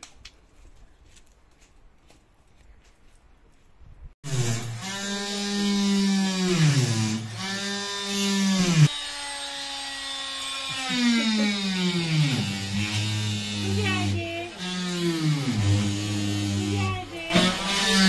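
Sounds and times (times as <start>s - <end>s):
power tool motor whining: 4.3s - 18.0s.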